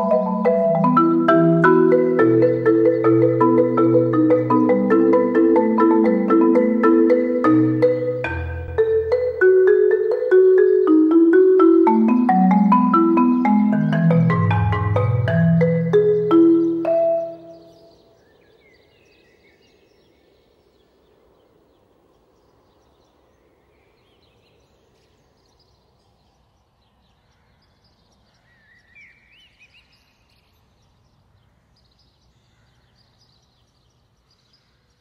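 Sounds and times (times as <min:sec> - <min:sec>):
marimba notes ringing: 0:00.0 - 0:18.1
small birds chirping: 0:00.0 - 0:35.0.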